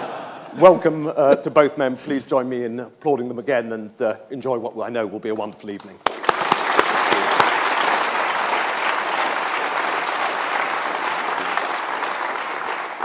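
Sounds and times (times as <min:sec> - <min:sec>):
audience applauding: 0:06.0 - 0:13.0.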